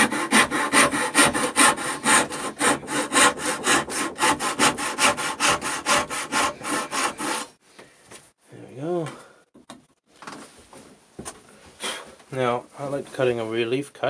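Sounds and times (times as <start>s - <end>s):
handsaw cutting wood: 0.0s - 7.6s.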